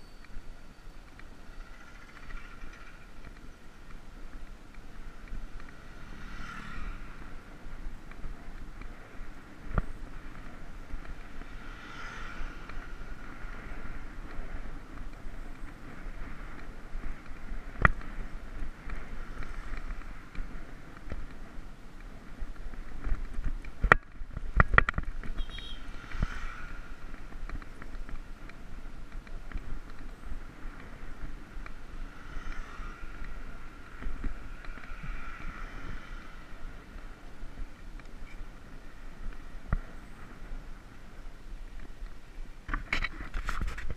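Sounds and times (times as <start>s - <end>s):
road rumble: 0.0s - 43.9s
sharp knocks and rattles: 1.5s - 3.4s.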